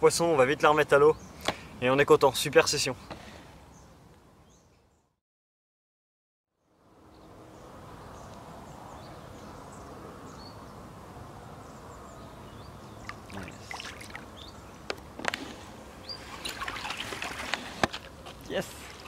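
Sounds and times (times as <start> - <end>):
fish splashing in water: 13.0 - 14.4, 16.2 - 17.9
water lapping and trickling: 13.0 - 14.6, 16.0 - 19.0.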